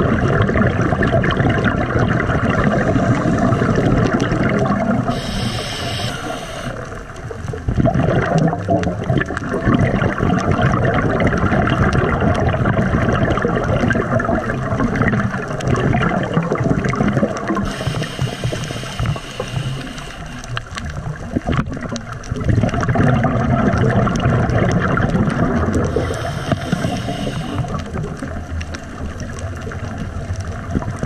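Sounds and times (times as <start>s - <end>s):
underwater scuba bubbles gurgling: 0.0s - 31.0s
regulator breathing: 2.6s - 4.1s, 5.0s - 7.1s, 17.6s - 20.8s, 25.9s - 28.0s.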